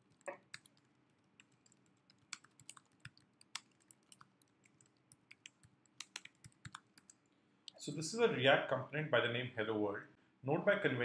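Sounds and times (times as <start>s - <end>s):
typing on computer keyboard: 0.0s - 7.2s.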